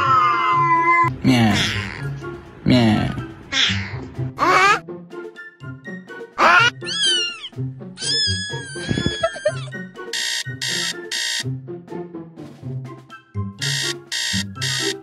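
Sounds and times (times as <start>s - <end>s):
background music: 0.0s - 15.0s
cat meowing: 6.4s - 9.7s
short high-pitched beeps: 10.2s - 11.4s, 13.6s - 15.0s.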